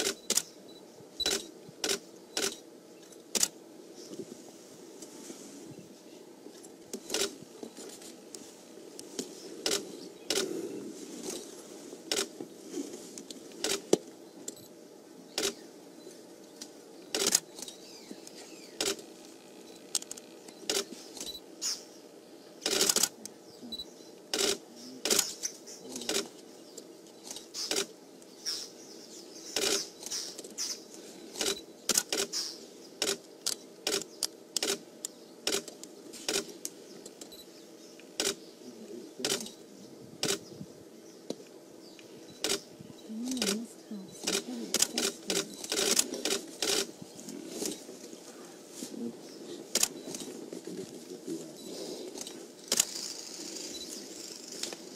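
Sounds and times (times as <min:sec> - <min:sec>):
faint steady hum: 0:00.0 - 0:54.9
camera shutters clicking: 0:01.2 - 0:02.6, 0:03.2 - 0:03.6, 0:07.0 - 0:07.4, 0:09.6 - 0:10.5, 0:15.4 - 0:15.6, 0:17.1 - 0:17.8, 0:18.8 - 0:19.1, 0:22.6 - 0:23.2, 0:24.3 - 0:26.3, 0:35.5 - 0:36.5, 0:39.2 - 0:39.6, 0:44.2 - 0:46.9, 0:49.7 - 0:50.3, 0:52.2 - 0:54.0.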